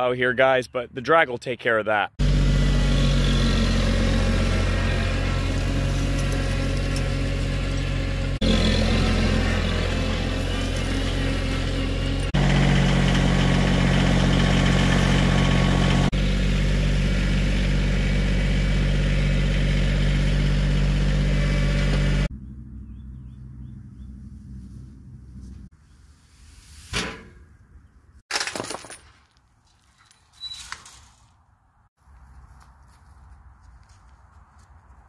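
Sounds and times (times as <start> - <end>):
tractor engine running: 2.2 - 25.7.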